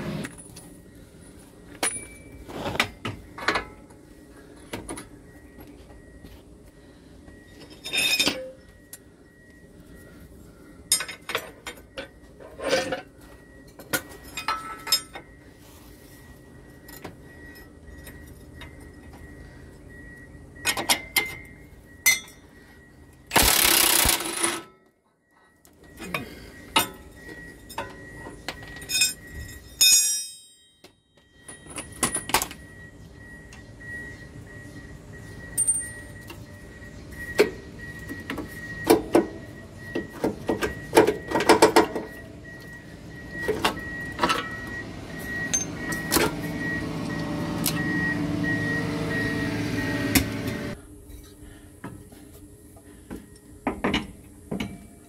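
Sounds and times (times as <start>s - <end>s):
diesel engine humming: 31.8s - 51.8s.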